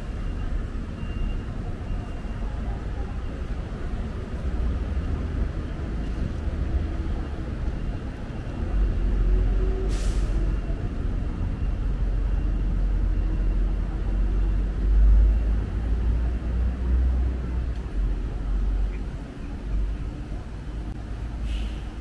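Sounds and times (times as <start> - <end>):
passing vehicles rumbling: 0.0 - 22.0
brief hiss: 21.4 - 21.9.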